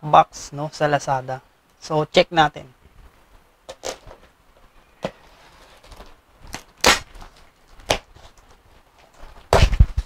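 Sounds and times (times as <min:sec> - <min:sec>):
blade scraping packing tape: 0:05.4 - 0:08.4.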